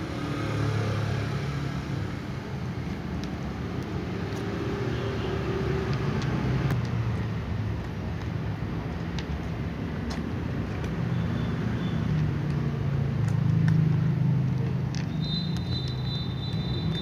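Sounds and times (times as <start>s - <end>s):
cats crunching dry kibble: 12.1s - 17.0s.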